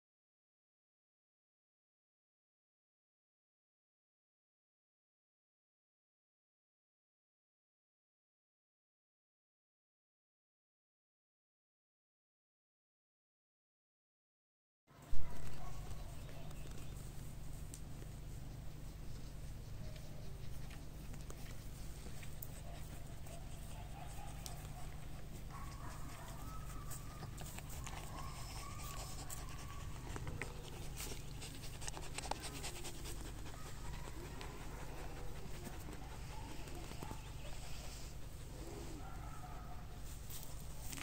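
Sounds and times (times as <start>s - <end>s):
dogs whining and howling: 23.7s - 30.8s.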